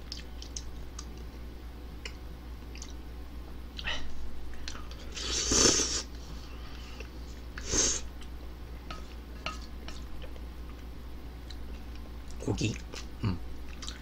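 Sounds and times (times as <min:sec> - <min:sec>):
person slurping noodles: 0:05.1 - 0:06.1.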